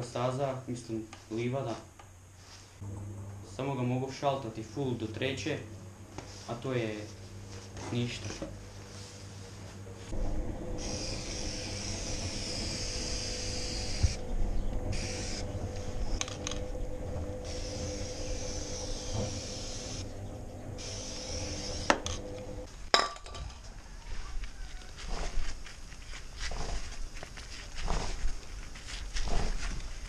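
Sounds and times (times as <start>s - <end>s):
aerosol spray can hissing: 10.8s - 14.2s, 14.9s - 15.4s, 17.4s - 20.0s, 20.8s - 22.1s.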